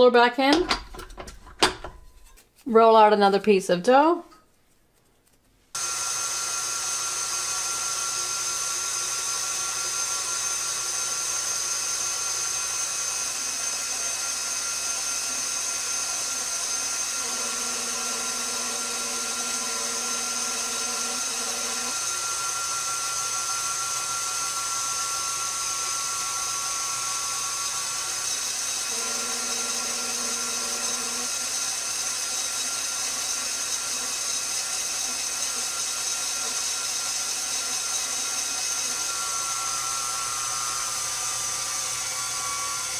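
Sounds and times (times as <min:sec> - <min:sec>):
stand mixer motor whine and hum: 0:05.8 - 0:42.9.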